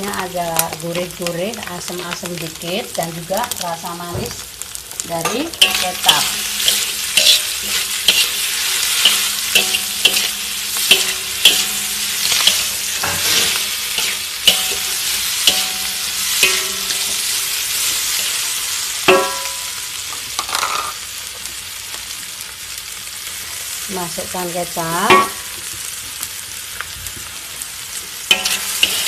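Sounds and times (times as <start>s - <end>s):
food sizzling: 0.0s - 29.0s
metal spatula scraping a wok: 5.2s - 19.8s, 20.4s - 21.0s, 28.3s - 29.0s.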